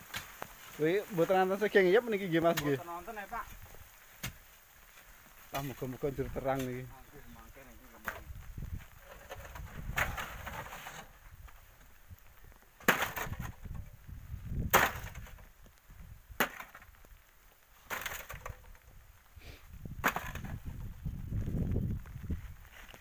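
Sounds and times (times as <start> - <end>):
digging gravel into metal basin: 8.9 - 11.2, 12.8 - 13.7, 20.0 - 20.7.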